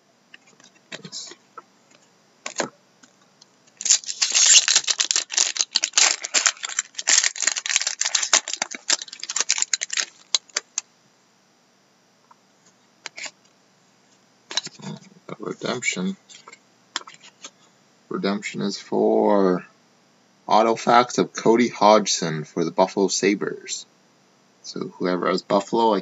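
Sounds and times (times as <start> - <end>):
foil wrapper crackling: 3.8 - 10.8.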